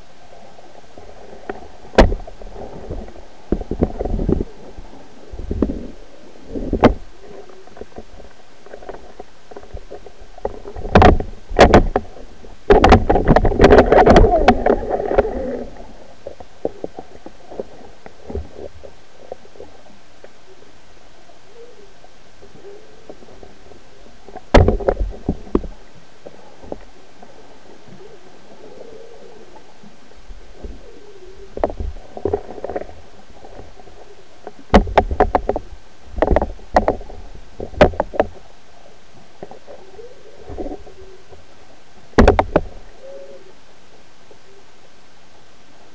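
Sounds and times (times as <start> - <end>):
low underwater rumble: 0.0 - 20.8.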